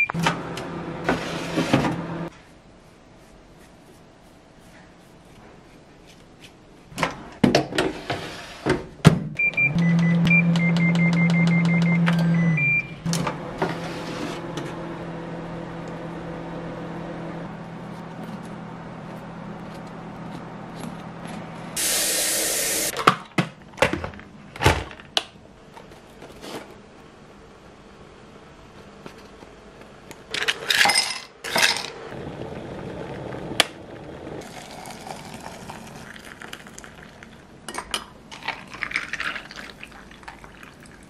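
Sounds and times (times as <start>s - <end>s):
oven humming: 0.0s - 2.3s, 9.4s - 22.9s, 31.9s - 34.8s
baking tray sliding into oven: 1.0s - 2.0s.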